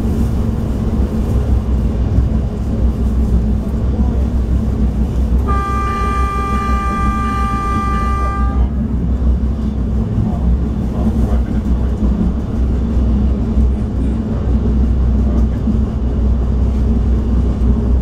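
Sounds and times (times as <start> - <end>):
train rumbling: 0.0 - 18.0
train horn blast: 5.4 - 8.9.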